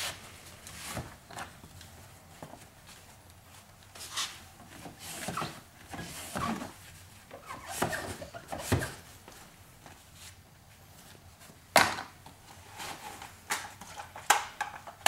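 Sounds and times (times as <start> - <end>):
tool scraping squeaky on glass: 7.4 - 9.0.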